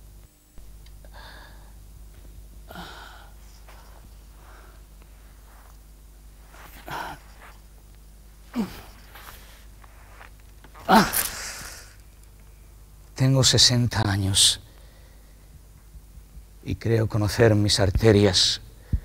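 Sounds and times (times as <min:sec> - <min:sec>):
steady low hum: 0:00.0 - 0:19.0
man breathing heavily and sighing: 0:01.0 - 0:01.9, 0:02.6 - 0:05.6, 0:06.5 - 0:07.6, 0:08.4 - 0:09.8
man groaning: 0:02.7 - 0:03.4, 0:08.5 - 0:09.2, 0:10.8 - 0:11.9.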